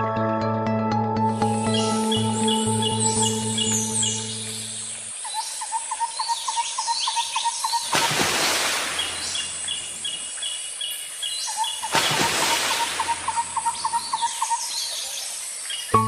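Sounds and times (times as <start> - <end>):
bird chirping rapid notes: 1.4 - 4.8
birds calling higher: 1.4 - 8.2, 8.8 - 16.0.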